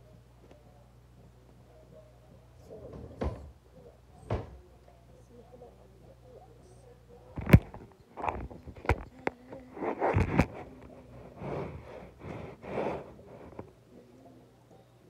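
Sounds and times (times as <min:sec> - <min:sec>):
rustling scrapes on fabric: 0:09.6 - 0:13.7.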